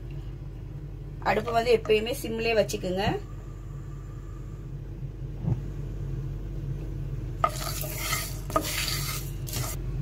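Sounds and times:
low hum: 0.0s - 10.0s
seeds scraping and rattling in pan: 7.4s - 9.8s.

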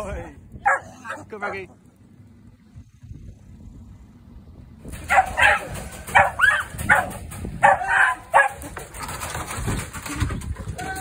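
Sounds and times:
dog yapping: 0.6s - 1.3s, 5.0s - 8.7s.

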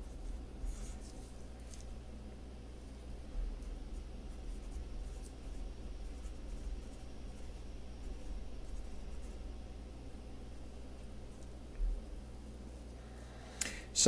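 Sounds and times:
pen scratching on paper: 0.0s - 1.2s, 3.9s - 9.4s
low steady hum: 0.0s - 14.0s.

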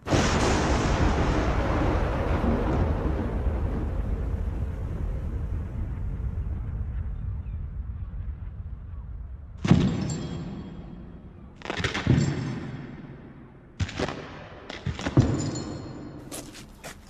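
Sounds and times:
low rumble: 0.1s - 11.6s
heavy booted footsteps: 16.2s - 17.0s.

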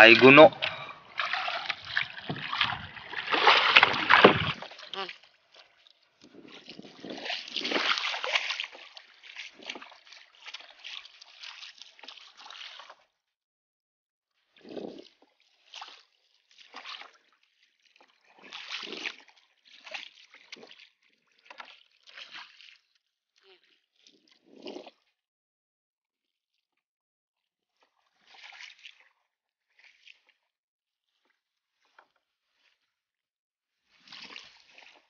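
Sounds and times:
paddle splashing in water: 0.0s - 13.1s, 14.6s - 22.9s, 28.0s - 29.1s, 29.7s - 30.4s, 33.9s - 35.0s
water sloshing against hull: 0.0s - 13.2s, 14.6s - 22.9s, 27.8s - 33.0s, 33.8s - 35.0s.

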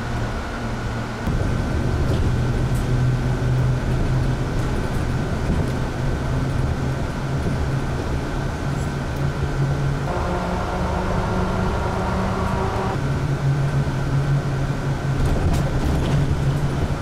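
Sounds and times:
bus engine drone: 0.0s - 17.0s
thin steady whine: 9.6s - 14.8s.

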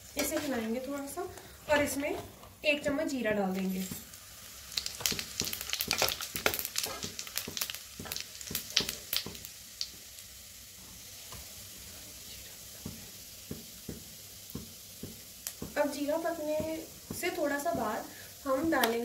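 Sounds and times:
spices sizzling in hot oil: 0.0s - 19.0s
oil crackling and popping: 3.5s - 11.8s, 12.8s - 19.0s.

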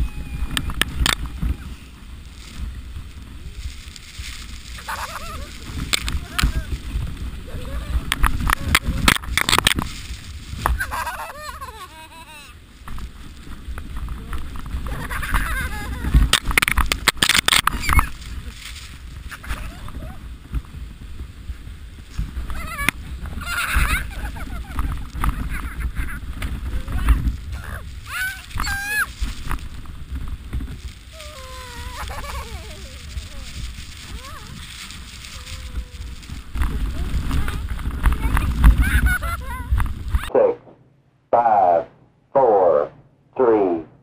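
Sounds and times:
girl laughing and squealing: 0.0s - 2.0s, 4.7s - 6.8s, 7.4s - 9.1s, 10.7s - 12.6s, 14.9s - 16.3s, 19.2s - 20.3s, 22.4s - 29.2s, 31.1s - 40.3s
sled rumbling on snow: 0.0s - 40.6s
wind on microphone: 0.0s - 40.8s
riders crying out: 4.8s - 9.1s, 22.3s - 29.2s, 31.0s - 40.4s.

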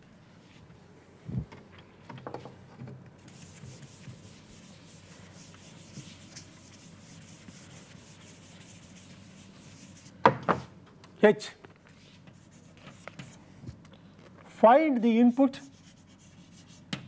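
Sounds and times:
chalk scratching on blackboard: 3.2s - 10.2s, 12.0s - 13.4s, 15.6s - 16.8s.

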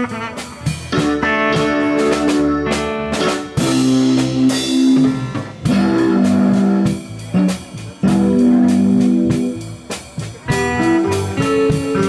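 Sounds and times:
guitar chords ringing: 0.9s - 9.7s.

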